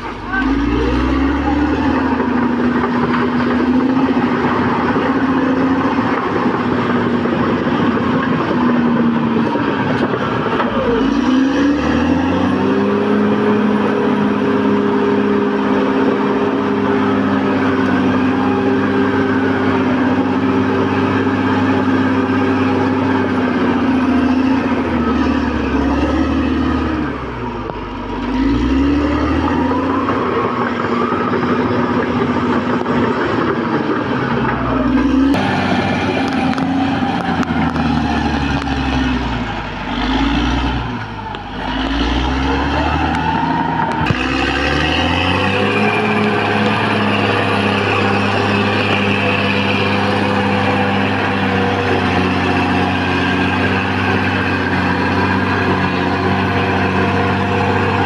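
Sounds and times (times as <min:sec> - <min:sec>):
bulldozer diesel engine running: 0:00.0 - 0:58.0.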